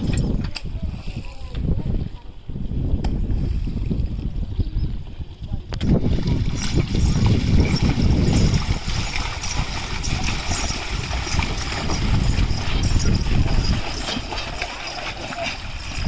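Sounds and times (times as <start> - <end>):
hooves squelching through mud: 5.8 - 16.0
water sloshing around cart wheels: 5.8 - 16.0.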